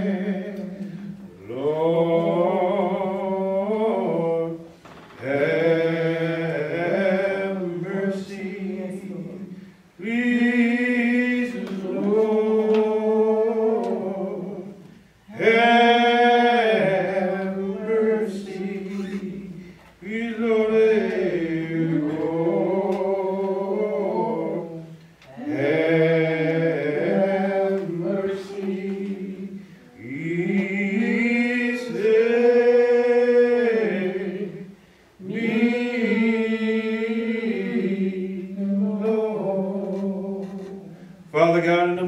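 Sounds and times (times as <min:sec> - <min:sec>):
man singing a hymn: 0:00.0 - 0:42.0.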